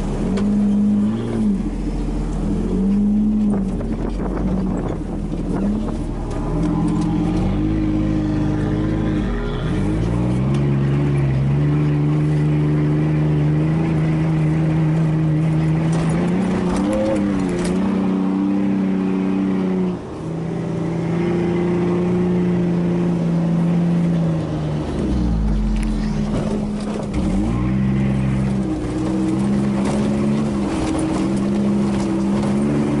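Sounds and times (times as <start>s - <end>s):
knocks and rattles over bumps: 0.0s - 18.5s, 24.9s - 33.0s
engine revving and shifting gears: 0.0s - 33.0s.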